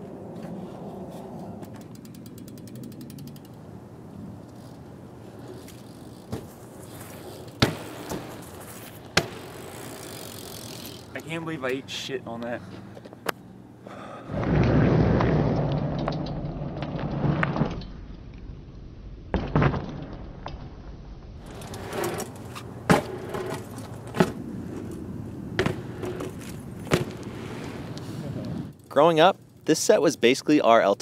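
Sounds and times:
bike tyres rolling on asphalt: 0.0s - 30.9s
bike knocks and thuds: 6.2s - 10.1s, 19.3s - 20.8s, 21.4s - 27.4s.

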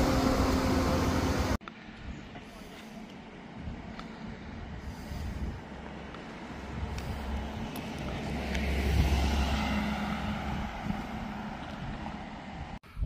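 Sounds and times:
car driving past: 6.4s - 12.7s.

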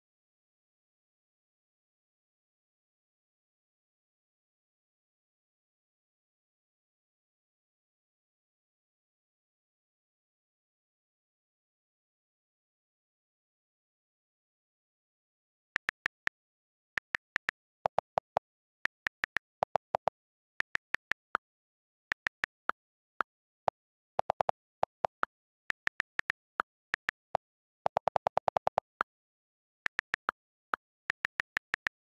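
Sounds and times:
phone keyboard clicks: 15.8s - 21.4s, 22.0s - 23.2s, 24.2s - 29.1s, 29.7s - 32.0s.

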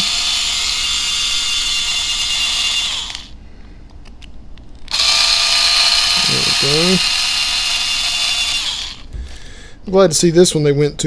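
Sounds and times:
electric screwdriver running: 0.0s - 3.4s, 4.9s - 9.1s.

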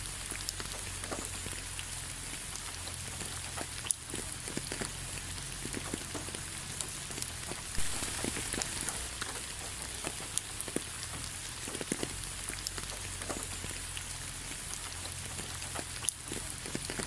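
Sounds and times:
raindrops striking close by: 0.0s - 17.0s
steady rain hiss: 0.0s - 17.0s.

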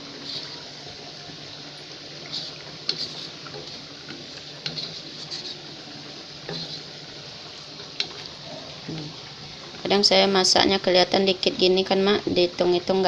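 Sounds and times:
spatula scraping and tapping a wok: 0.2s - 0.6s, 2.2s - 7.0s, 7.8s - 9.0s.

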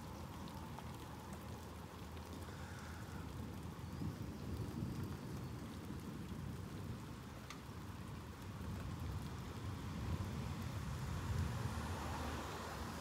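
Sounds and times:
steady rain falling: 0.0s - 13.0s.

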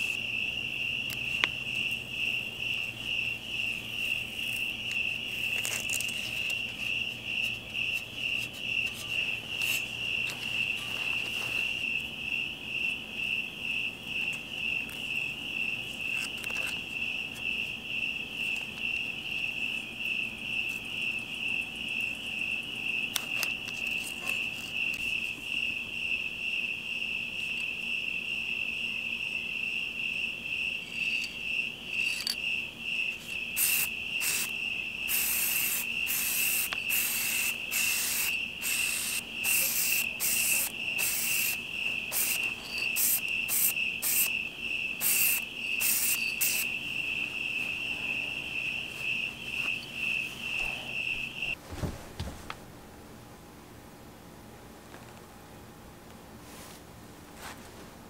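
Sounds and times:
crickets chirping: 0.0s - 51.9s
spray paint can hissing: 9.6s - 9.9s, 33.6s - 34.5s, 35.1s - 44.3s, 45.0s - 46.7s.

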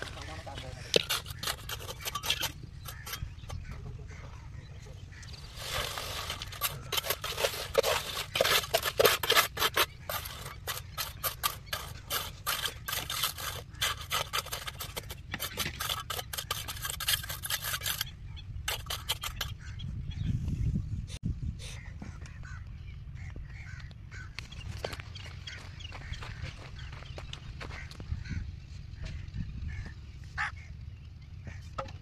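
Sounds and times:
trowel scraping wet concrete: 0.0s - 3.8s, 5.2s - 19.6s.

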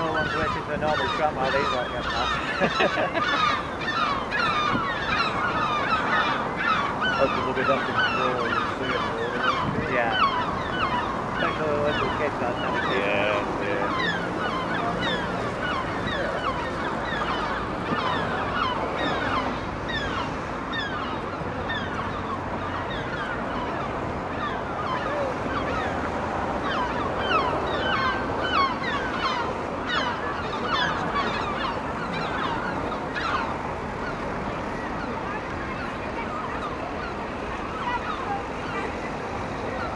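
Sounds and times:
gulls calling: 0.0s - 39.9s.

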